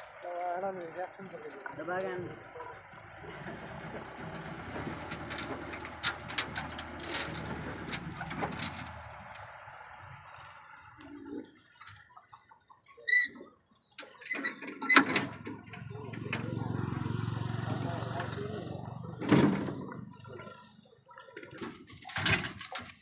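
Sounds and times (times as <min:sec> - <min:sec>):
knocks and rustling: 0:03.3 - 0:09.4, 0:21.6 - 0:23.0.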